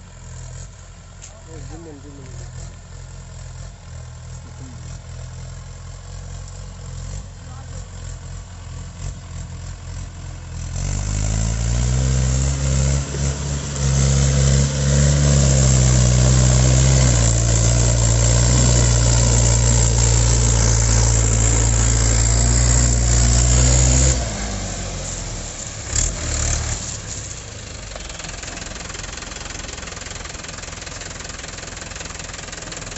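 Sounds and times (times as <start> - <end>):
tractor diesel engine revving: 0.0 - 32.9.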